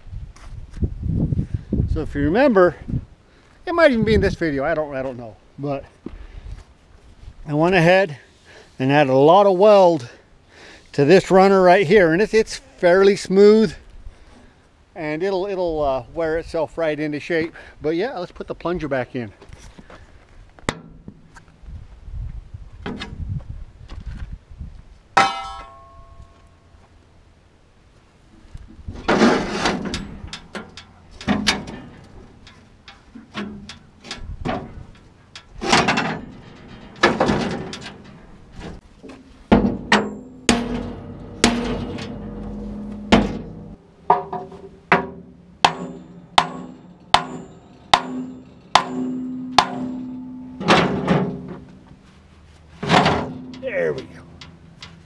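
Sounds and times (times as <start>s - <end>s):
metal scraping hits: 29.0s - 52.0s, 52.7s - 55.0s.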